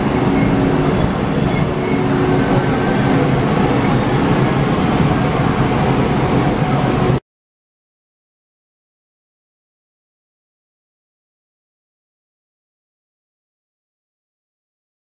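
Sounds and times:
low motor hum: 0:00.0 - 0:07.2
train wheels rumbling: 0:00.0 - 0:07.2.

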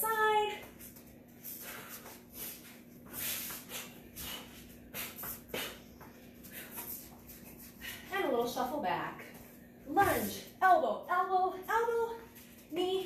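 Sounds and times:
short sharp exhales: 0:03.1 - 0:05.9.

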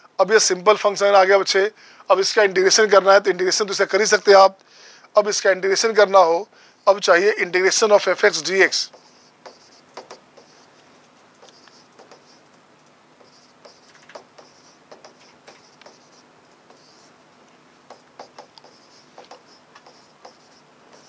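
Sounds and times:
pen scratching on paper: 0:06.8 - 0:10.8, 0:11.4 - 0:12.5, 0:13.2 - 0:17.1, 0:17.9 - 0:21.0
pen tapping: 0:08.9 - 0:10.7, 0:11.4 - 0:12.4, 0:13.2 - 0:17.1, 0:17.9 - 0:21.0.

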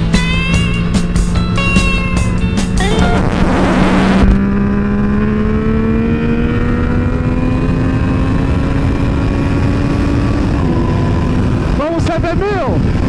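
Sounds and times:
motorcycle engine accelerating: 0:00.0 - 0:13.0
wind noise on microphone: 0:02.7 - 0:11.8.

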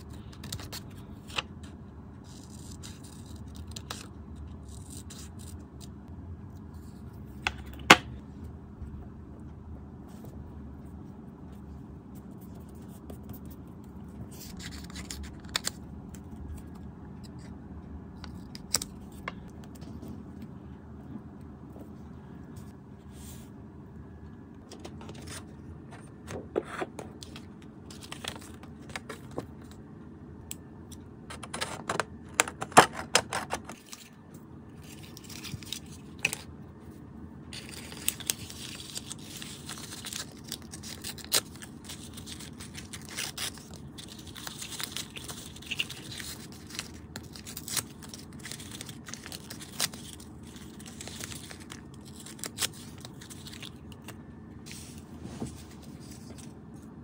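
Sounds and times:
paper rustling: 0:12.1 - 0:17.5, 0:24.6 - 0:29.8, 0:37.5 - 0:56.9
tape peeled and torn: 0:14.3 - 0:17.5, 0:37.6 - 0:54.9.

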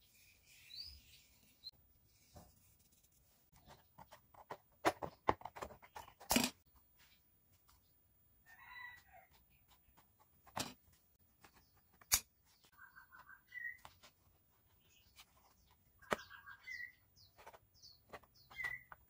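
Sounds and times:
bird calling: 0:12.7 - 0:13.9, 0:16.0 - 0:19.0.

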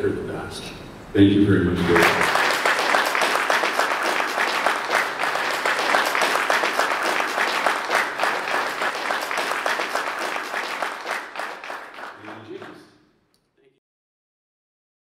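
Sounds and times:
audience applauding: 0:01.8 - 0:12.9.

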